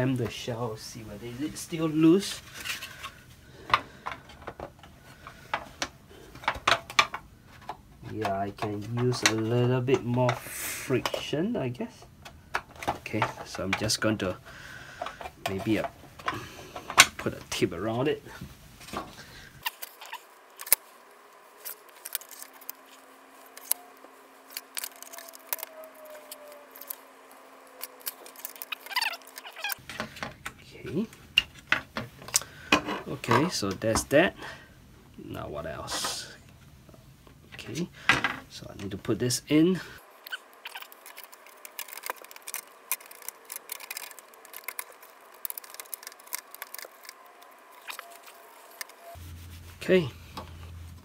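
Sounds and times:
tape roll handling clicks: 19.6s - 20.8s, 21.6s - 29.8s, 40.2s - 49.1s.

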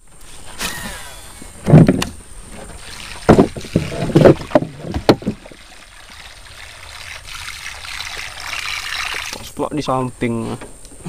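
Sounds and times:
soft rushing of water or wind: 1.5s - 10.4s
knocks against boat hull: 3.2s - 5.4s.

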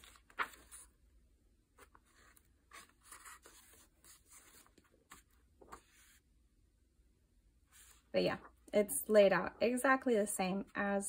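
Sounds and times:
paper pages turning: 0.0s - 1.0s, 1.8s - 6.2s.

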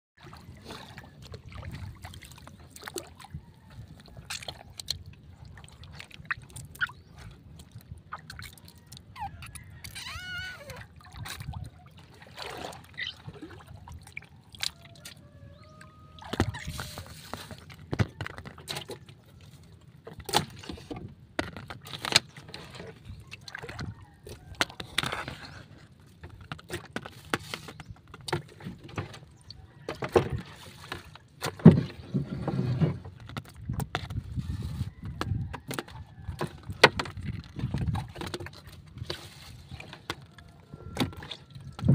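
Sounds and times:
water lapping around boat: 0.2s - 41.9s.

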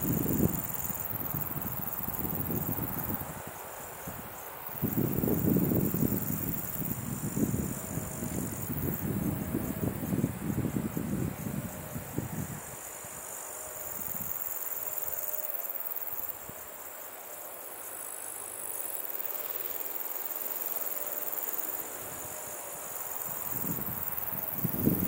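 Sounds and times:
wind buffeting microphone: 0.0s - 13.1s, 23.2s - 25.0s
insects chirring: 0.0s - 25.0s.

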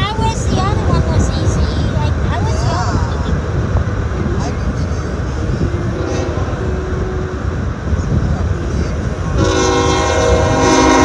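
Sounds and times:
low rumble: 0.0s - 11.0s
locomotive air horn chord: 4.1s - 11.0s.

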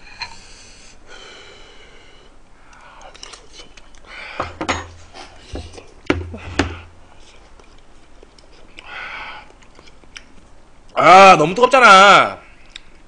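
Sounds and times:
man huffing and gasping: 4.2s - 7.0s.

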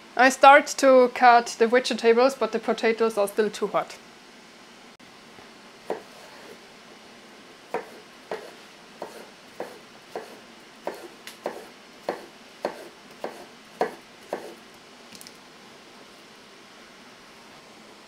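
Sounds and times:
knife chopping on cutting board: 5.9s - 6.6s, 7.7s - 14.6s.

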